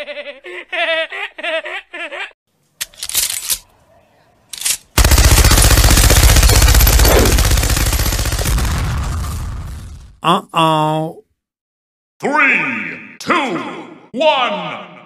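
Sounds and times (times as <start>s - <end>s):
machine gun fire: 5.0s - 9.9s.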